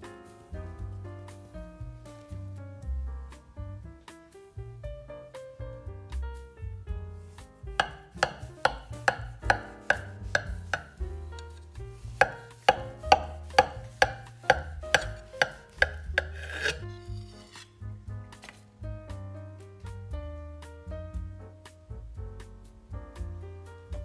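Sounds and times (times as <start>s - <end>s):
soft background music: 0.0s - 24.0s
knife sawing through cake: 7.8s - 11.0s, 12.2s - 17.6s.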